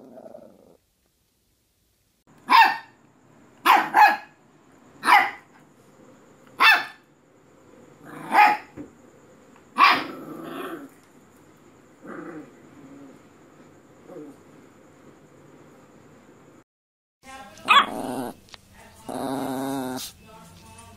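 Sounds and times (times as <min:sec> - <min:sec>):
puppy growling: 0:00.0 - 0:00.8, 0:07.9 - 0:08.7, 0:09.8 - 0:11.1, 0:12.0 - 0:13.4, 0:14.0 - 0:14.6, 0:17.6 - 0:20.2
puppy barking: 0:02.4 - 0:03.0, 0:03.6 - 0:04.4, 0:05.0 - 0:05.5, 0:06.6 - 0:07.0, 0:08.2 - 0:08.8, 0:09.8 - 0:10.2, 0:17.6 - 0:18.4.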